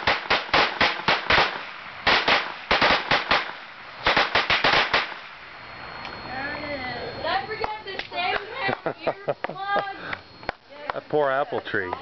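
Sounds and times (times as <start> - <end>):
firecrackers cracking: 0.0 - 5.6.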